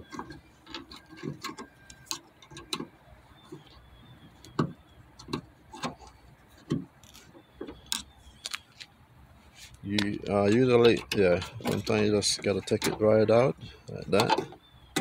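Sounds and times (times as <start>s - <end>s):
metal pick clicking and scraping: 0.0s - 3.8s, 9.6s - 15.0s.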